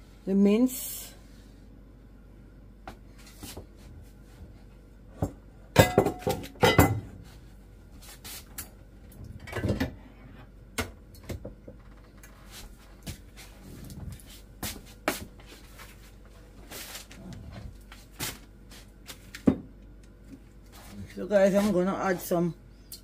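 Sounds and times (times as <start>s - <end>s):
pots and utensils clattering: 5.8s - 7.1s.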